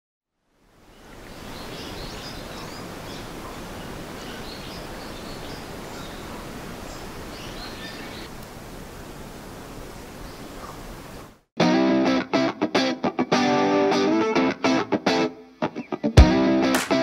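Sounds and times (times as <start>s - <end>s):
small birds chirping: 0.8s - 11.4s.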